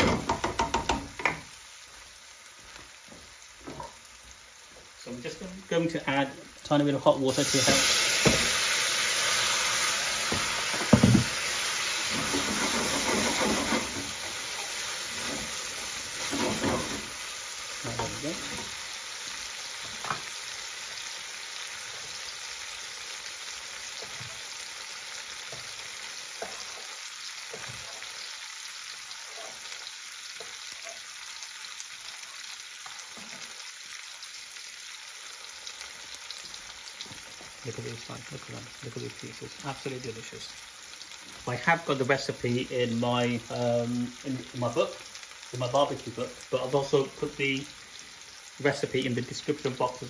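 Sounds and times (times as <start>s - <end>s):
spoon knocking against pan: 0.0s - 1.5s
sauce sizzling in a pan: 0.0s - 50.0s.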